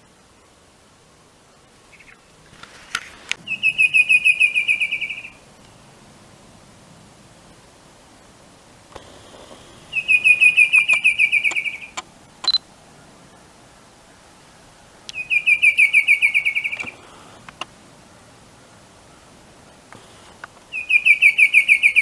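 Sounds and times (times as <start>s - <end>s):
bird trilling: 3.4s - 5.4s, 9.8s - 12.6s, 15.1s - 17.1s, 20.7s - 22.0s.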